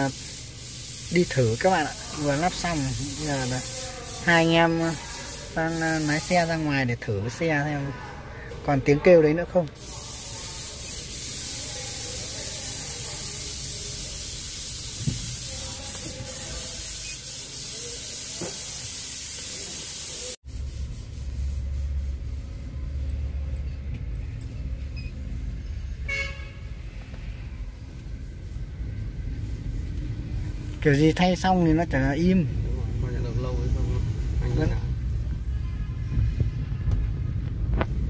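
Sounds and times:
steady hiss: 0.0 - 6.9, 9.7 - 22.2
car horn toot: 26.0 - 26.8.

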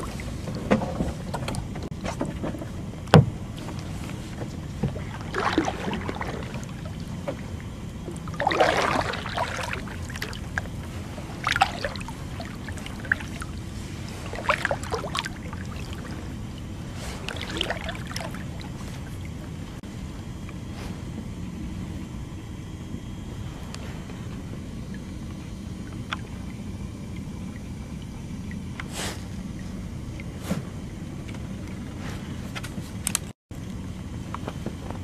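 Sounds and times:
paddle strokes splashing water: 0.0 - 19.8
steady low hum: 0.0 - 35.0.

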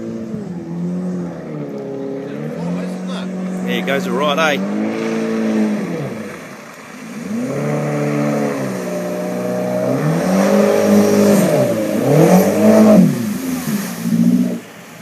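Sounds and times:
jet boat engine revving: 0.0 - 15.0
hiss of water spray: 13.0 - 15.0.

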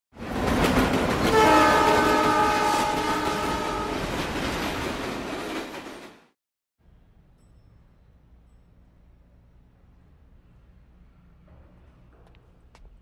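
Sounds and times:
moving train noise: 0.2 - 6.4
train horn chord: 1.3 - 4.0.

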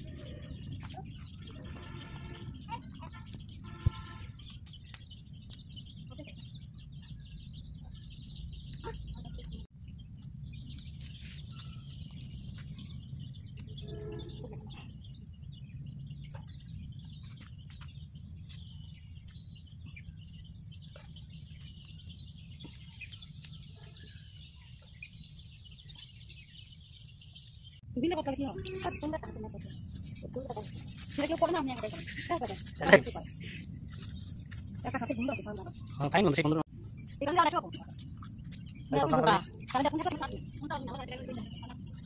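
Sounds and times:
bird chirping: 0.0 - 42.0.

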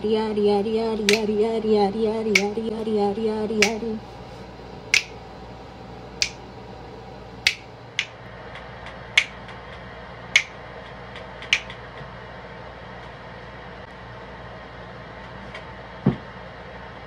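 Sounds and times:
finger snapping: 1.1 - 1.3, 2.4 - 2.6, 3.6 - 3.8, 4.9 - 5.2, 6.2 - 6.4, 7.4 - 8.1, 9.2 - 9.4, 11.4 - 11.8.

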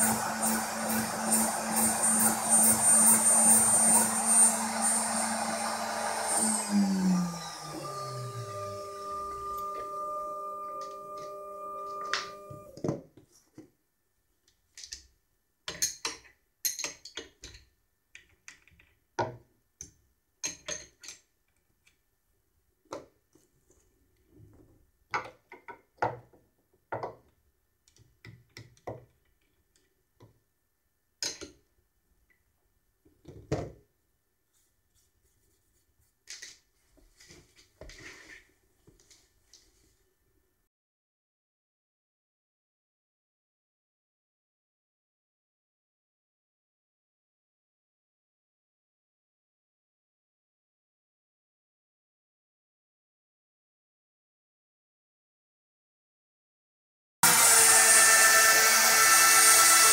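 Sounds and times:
rotary tool spindle running down: 0.0 - 12.7.

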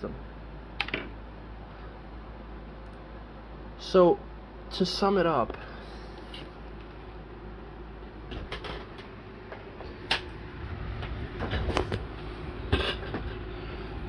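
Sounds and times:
low hum: 5.5 - 14.0.

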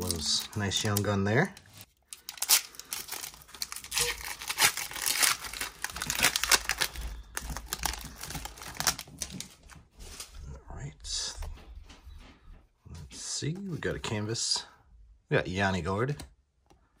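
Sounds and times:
foil wrapper crinkling: 0.0 - 10.2.

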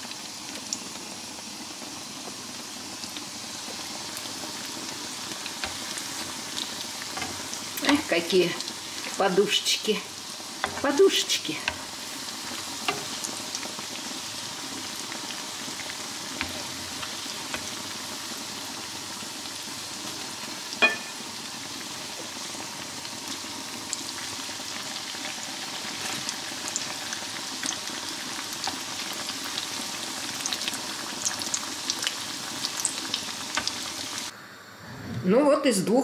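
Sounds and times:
pastries sizzling in hot fat: 0.0 - 34.4
sharp clink: 20.8 - 21.2.

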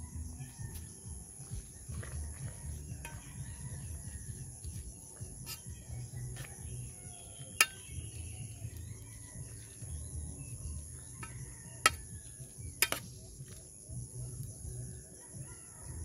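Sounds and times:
crickets chirping: 0.0 - 16.0
spoon clinking on metal pot: 7.4 - 8.2, 11.2 - 13.1.

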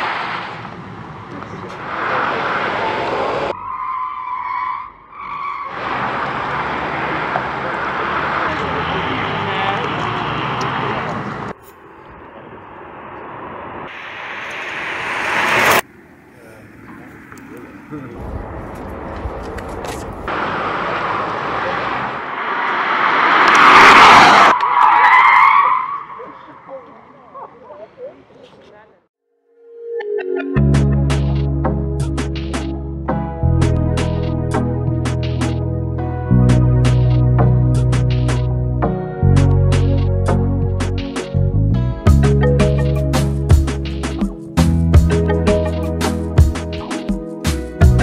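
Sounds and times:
car passing tyre and wind noise: 0.0 - 3.6, 5.7 - 27.1
high tyre squeal: 1.9 - 7.7, 22.3 - 26.7
wavering high whine: 11.6 - 15.9
tyre and wind noise: 15.6 - 20.4.

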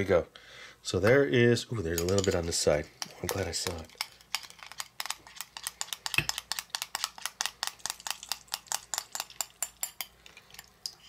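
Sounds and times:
metal utensil ticking against dish: 3.0 - 10.2.

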